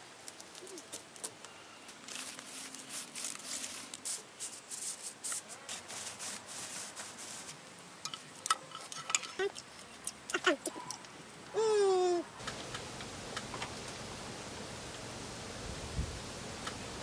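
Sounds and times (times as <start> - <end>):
plastic strips rustling: 0.2 - 7.6.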